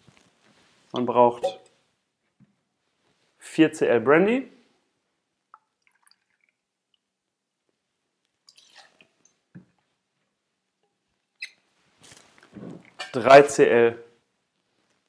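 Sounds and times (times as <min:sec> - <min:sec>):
liquid trickling into metal cup: 0:08.5 - 0:09.1.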